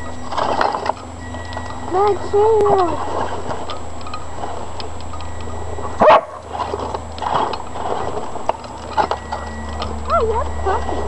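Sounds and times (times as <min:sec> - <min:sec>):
low hum: 0:00.0 - 0:11.0
dog barking: 0:06.0 - 0:06.4.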